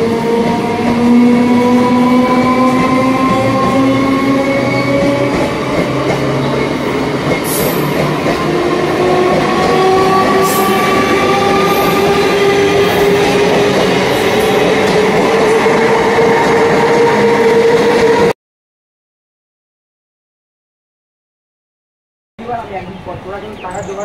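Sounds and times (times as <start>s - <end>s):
train wheels rumbling on rail: 0.0s - 18.3s.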